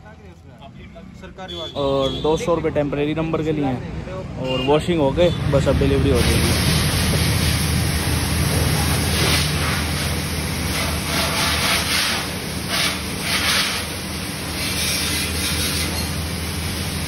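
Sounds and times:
pressure washer motor hum: 0:06.1 - 0:17.0
pressure washer spraying water: 0:06.1 - 0:17.0.

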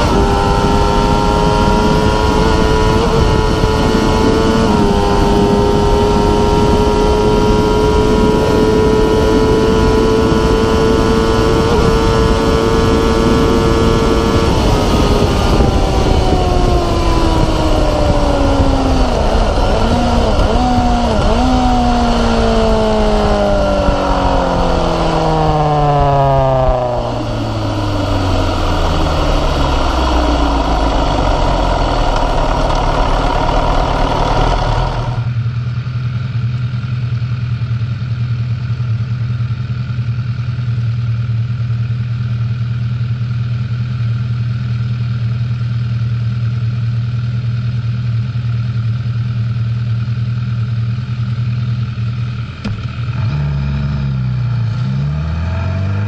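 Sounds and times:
motorcycle engine revs falling: 0:00.0 - 0:35.4, 0:52.0 - 0:56.0
wind rush: 0:00.0 - 0:35.4
motorcycle engine idling: 0:14.4 - 0:54.8.

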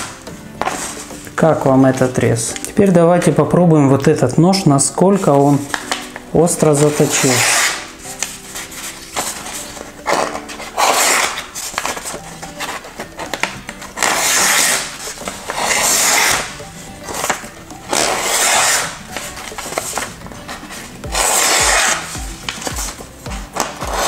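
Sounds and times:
paper rustling: 0:00.0 - 0:04.1, 0:05.0 - 0:24.0
knife slicing through paper: 0:06.7 - 0:13.4, 0:14.0 - 0:23.0.

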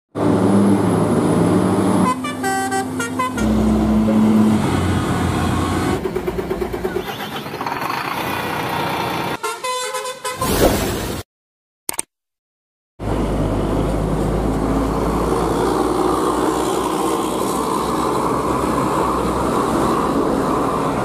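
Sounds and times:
diesel trucks driving past: 0:00.2 - 0:10.4, 0:13.0 - 0:21.0
truck horn blasts: 0:01.9 - 0:05.7, 0:06.9 - 0:07.5, 0:09.4 - 0:10.5.

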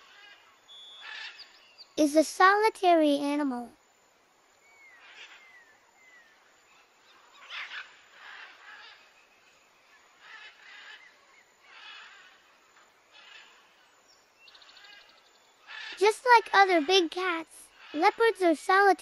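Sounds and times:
harsh bird calls: 0:00.0 - 0:02.1, 0:04.6 - 0:18.4
faint whistled bird chirps: 0:00.6 - 0:02.0, 0:04.6 - 0:07.5.

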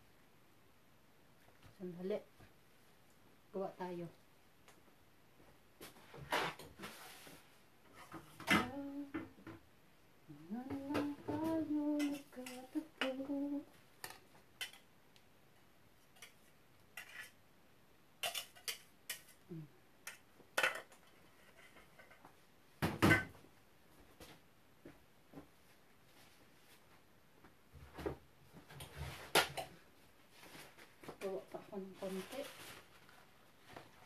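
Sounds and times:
woman humming: 0:08.4 - 0:09.3, 0:10.3 - 0:13.7, 0:19.5 - 0:19.8
dishes and utensils clinking: 0:18.2 - 0:19.4.

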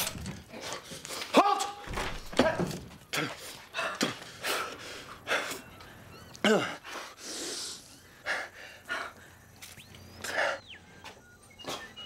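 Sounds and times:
people gasping and breathing hard: 0:03.0 - 0:09.6.

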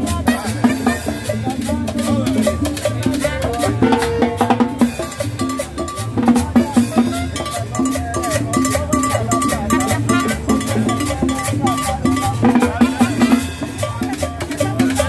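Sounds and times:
live salsa band: 0:00.0 - 0:15.0
steady drum beat: 0:00.0 - 0:15.0
upright bass: 0:00.0 - 0:15.0
trumpet: 0:02.7 - 0:14.1.

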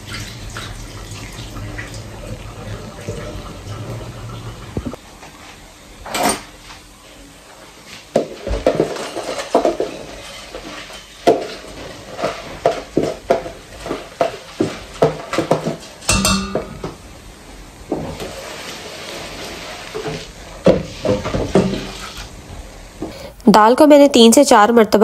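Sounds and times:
kitchenware clattering: 0:06.1 - 0:06.5, 0:08.1 - 0:17.0.

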